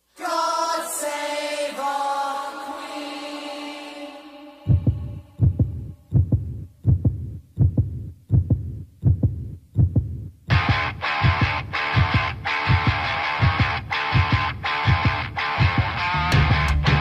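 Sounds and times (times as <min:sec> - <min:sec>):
choir holding a note: 0:00.1 - 0:05.4
deep thumping beat: 0:04.7 - 0:17.0
loud electric guitars: 0:10.5 - 0:17.0.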